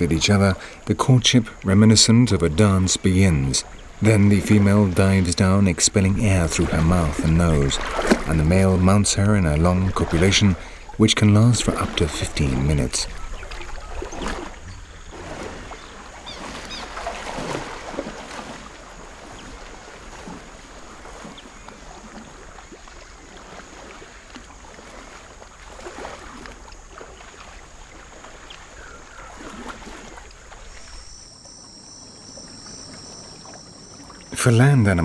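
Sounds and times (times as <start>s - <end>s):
water sloshing and splashing: 0.0s - 35.0s.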